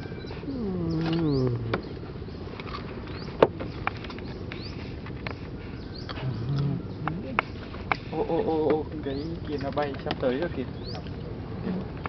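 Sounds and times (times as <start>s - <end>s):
bird chirps: 0.0s - 5.0s, 9.0s - 9.8s, 10.6s - 11.2s.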